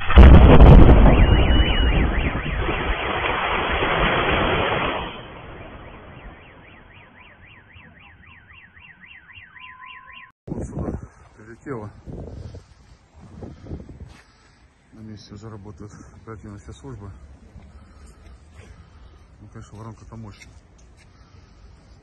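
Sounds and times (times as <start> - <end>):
explosion blast and rumble: 0.0 - 6.6
car alarm wailing: 0.8 - 3.4, 5.2 - 10.4
car alarm steady tone: 0.9 - 3.4, 5.2 - 10.4.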